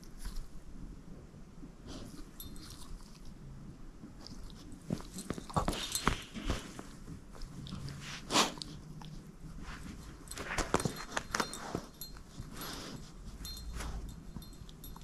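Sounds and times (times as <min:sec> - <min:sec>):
dog chewing a plush toy: 0:01.9 - 0:15.0
small jingle bell tinkling: 0:02.3 - 0:03.0, 0:10.1 - 0:15.0.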